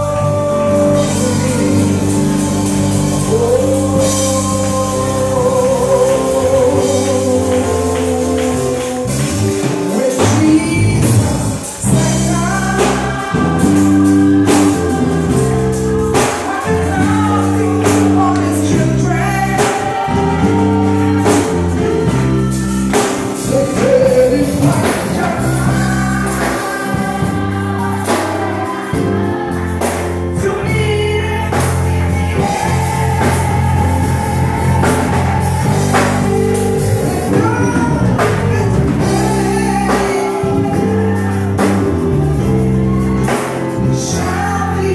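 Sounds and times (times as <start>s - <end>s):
amplified singing: 0.0s - 44.9s
bass guitar: 0.0s - 44.9s
congregation singing along: 0.0s - 44.9s
electric keyboard: 0.0s - 44.9s.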